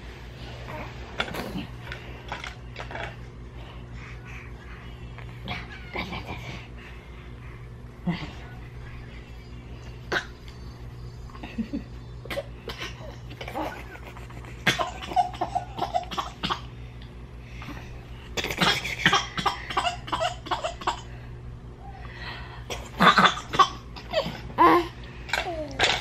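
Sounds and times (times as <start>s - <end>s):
woman laughing: 11.3s - 12.1s
baby laughing: 12.2s - 16.5s.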